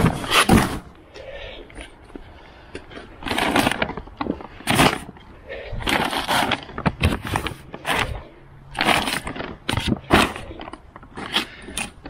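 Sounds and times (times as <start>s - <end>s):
paper bags crinkling: 3.2s - 5.1s, 8.8s - 11.9s.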